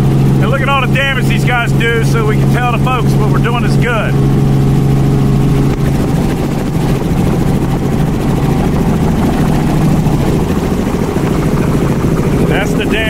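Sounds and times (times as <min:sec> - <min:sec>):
helicopter rotor and engine drone: 0:00.0 - 0:13.0.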